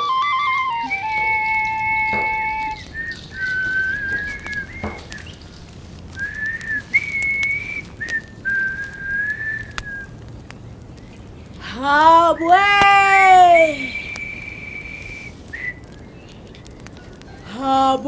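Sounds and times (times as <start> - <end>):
person whistling slow melody: 0.0 - 5.3, 6.1 - 10.2, 13.6 - 16.1.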